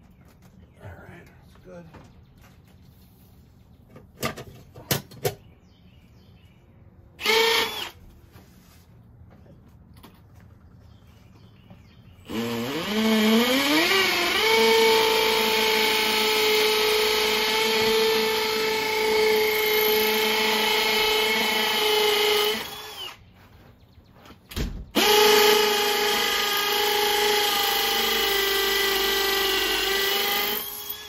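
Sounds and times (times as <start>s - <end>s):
cordless drill motor whining: 7.2s - 8.0s, 12.3s - 23.2s, 25.0s - 31.0s.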